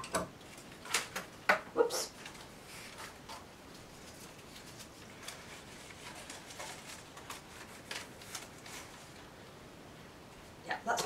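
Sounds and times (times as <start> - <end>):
cane rustling and ticking: 2.2 - 9.3.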